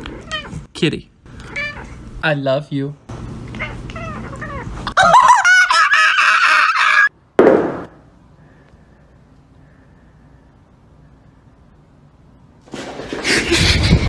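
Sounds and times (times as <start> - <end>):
cat meowing: 1.4 - 2.0, 3.5 - 4.7.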